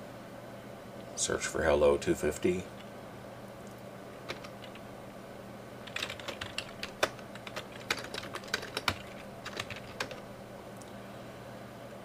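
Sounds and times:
computer keyboard typing: 4.3s - 4.8s, 5.8s - 10.3s.

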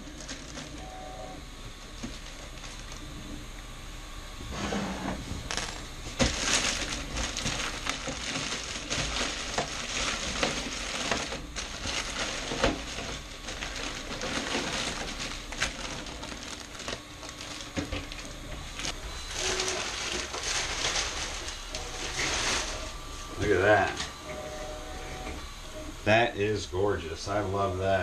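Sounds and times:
plastic bag crinkling: 0.0s - 0.9s, 1.7s - 3.2s, 6.2s - 24.0s.

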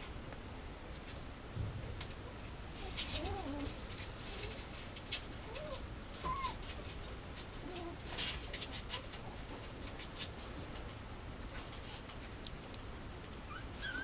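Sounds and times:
puppy whimpering: 2.8s - 4.7s, 5.4s - 6.7s, 13.4s - 14.0s.

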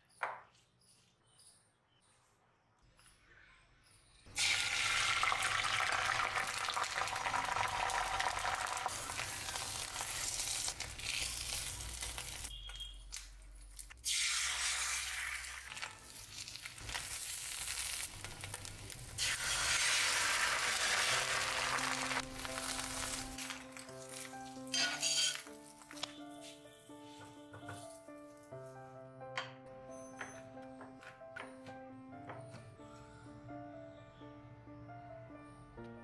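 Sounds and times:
egg sizzling in hot oil: 4.3s - 12.7s, 14.0s - 25.8s.

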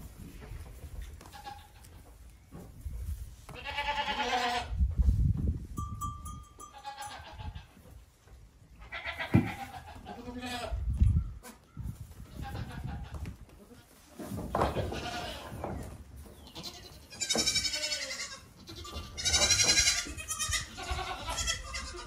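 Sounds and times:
goat kids bleating: 1.1s - 2.0s, 3.5s - 4.8s, 6.6s - 7.9s, 8.7s - 14.0s, 14.6s - 15.6s, 16.4s - 22.0s
heavy thuds of goats landing: 9.2s - 9.7s, 14.3s - 16.0s.

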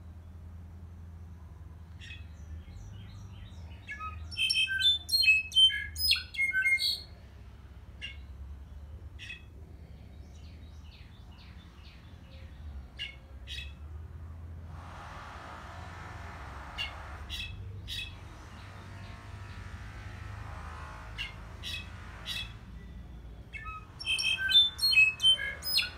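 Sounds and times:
bird calls and song: 1.8s - 7.1s, 8.0s - 13.8s, 16.8s - 19.7s, 21.2s - 25.9s.

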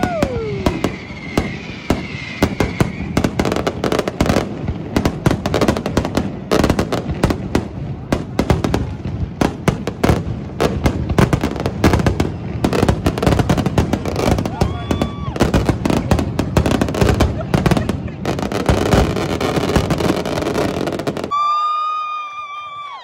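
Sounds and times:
high firework whistle: 0.0s - 4.4s, 11.9s - 23.0s
fireworks bangs and crackles: 0.0s - 21.5s.

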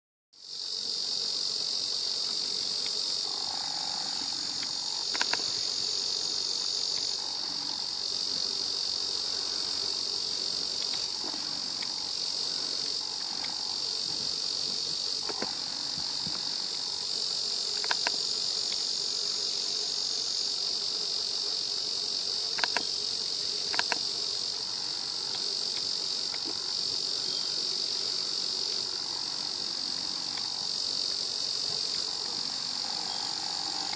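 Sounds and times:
insects buzzing: 0.4s - 33.9s
sharp clicks: 4.6s - 5.5s, 17.7s - 18.8s, 22.5s - 22.9s, 23.7s - 24.1s.

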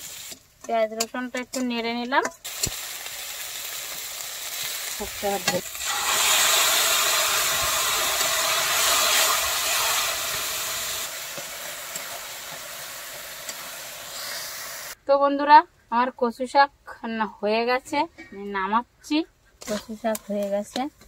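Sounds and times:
metal spatula stirring: 0.0s - 2.8s, 11.3s - 14.4s, 19.6s - 21.0s
loud sizzle of frying: 0.0s - 15.0s.

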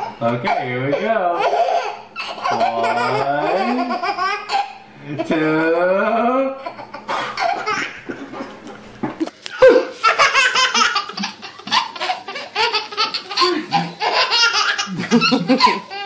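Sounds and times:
baby laughing: 0.0s - 5.5s, 6.6s - 8.6s, 9.5s - 16.0s.

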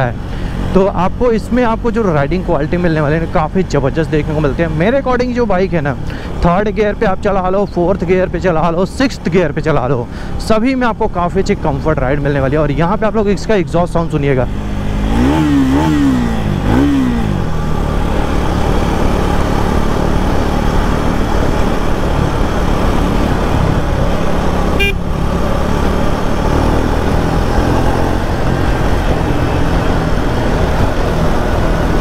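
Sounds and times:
road noise: 0.0s - 32.0s
motorcycle engine and exhaust: 10.0s - 32.0s.

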